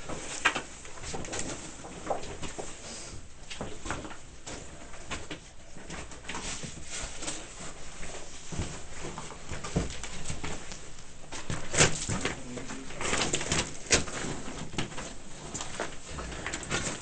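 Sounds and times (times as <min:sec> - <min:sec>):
gear clicking and rustling in box: 0:03.6 - 0:17.0.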